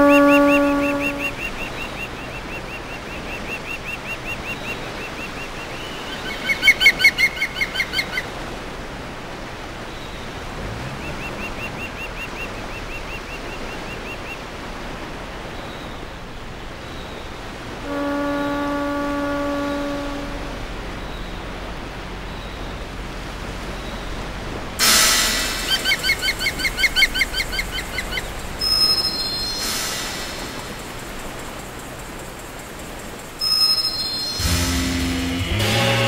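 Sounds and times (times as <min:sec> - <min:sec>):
ship's horn blast: 0:00.0 - 0:01.9, 0:10.3 - 0:11.9, 0:17.7 - 0:26.7, 0:28.6 - 0:31.6, 0:33.2 - 0:36.0
gulls calling: 0:00.0 - 0:08.7, 0:09.5 - 0:14.7, 0:15.4 - 0:36.0
background hiss: 0:00.0 - 0:36.0.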